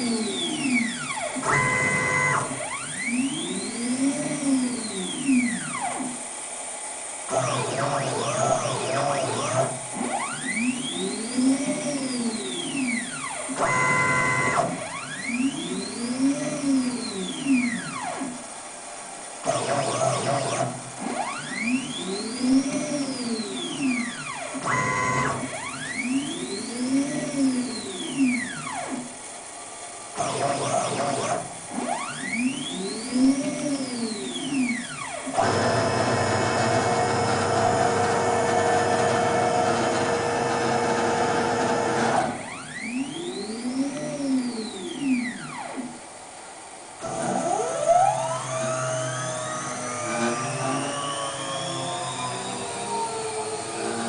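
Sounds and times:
stepper motors whining: 0.0s - 6.1s, 19.4s - 29.1s, 30.2s - 46.0s, 47.0s - 54.0s
multi-tone hum: 0.0s - 6.2s, 7.3s - 54.0s.

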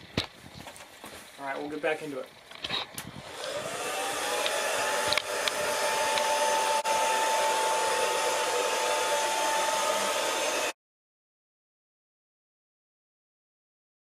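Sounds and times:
hair dryer blowing with whine: 3.1s - 10.8s.

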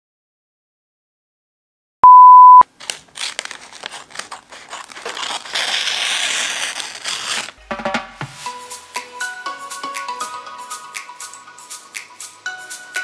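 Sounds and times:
steady countdown beep: 2.0s - 2.6s
wrapping paper crinkling: 2.7s - 7.6s
music: 7.6s - 13.0s.

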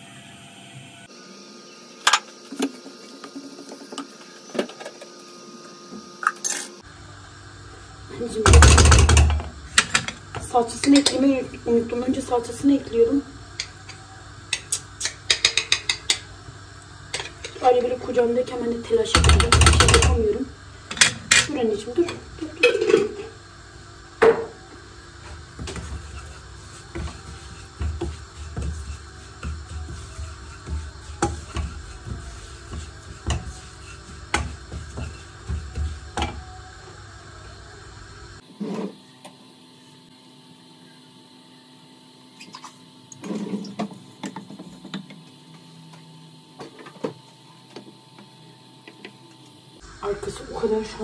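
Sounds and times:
utensils clinking against pots: 8.4s - 11.4s, 13.6s - 16.3s
kitchen knocks and taps: 14.6s - 16.3s.

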